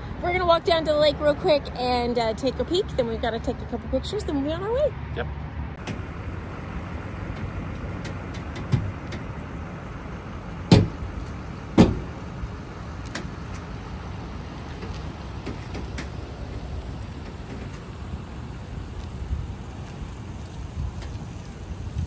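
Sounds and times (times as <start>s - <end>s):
pickup truck engine rumbling: 0.0s - 22.0s
loud clunks: 10.7s - 11.0s, 11.8s - 12.2s.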